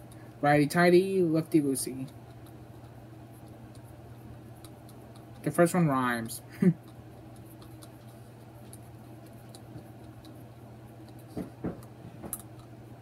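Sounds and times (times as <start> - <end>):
steady low hum: 0.0 - 13.0
soft knocks: 11.3 - 12.4.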